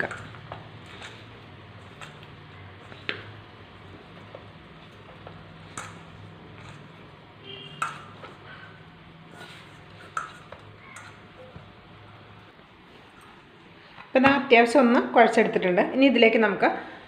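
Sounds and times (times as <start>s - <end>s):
hand kneading dough: 0.0s - 13.6s.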